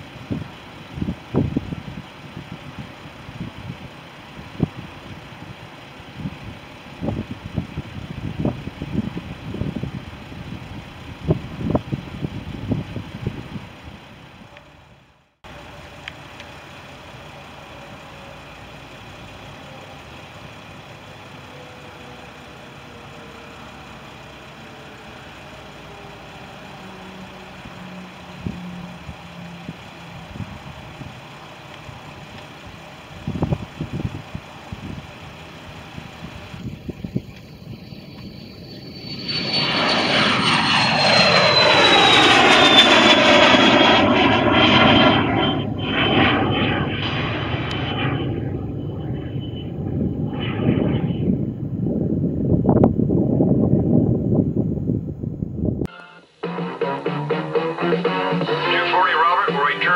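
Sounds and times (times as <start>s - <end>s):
wind buffeting microphone: 0.1s - 14.5s, 33.1s - 37.8s, 48.4s - 55.9s
jet engines whining: 15.5s - 59.9s.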